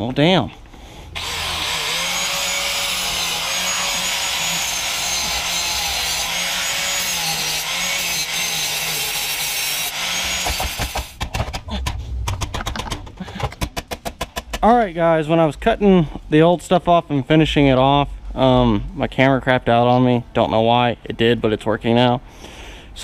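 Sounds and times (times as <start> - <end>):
power tool grinding metal pipe: 1.2 - 11.2
knocks: 10.4 - 14.7.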